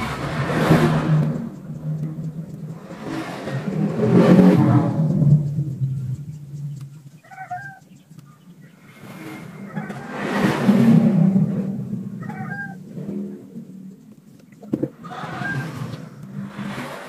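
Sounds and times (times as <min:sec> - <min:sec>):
vehicle passing by: 0:00.0 - 0:06.7, 0:08.8 - 0:13.6, 0:15.0 - 0:17.0.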